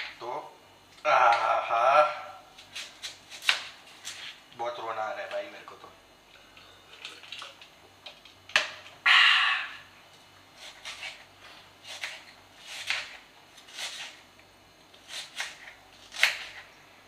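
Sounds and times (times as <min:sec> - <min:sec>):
knife chopping onion on board: 0:11.8 - 0:14.2, 0:15.0 - 0:16.6.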